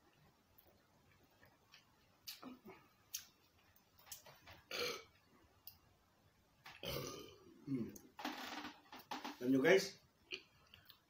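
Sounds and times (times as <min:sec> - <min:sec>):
mouth sounds of eating and drinking: 0:06.8 - 0:08.1
low grunts: 0:06.9 - 0:08.0.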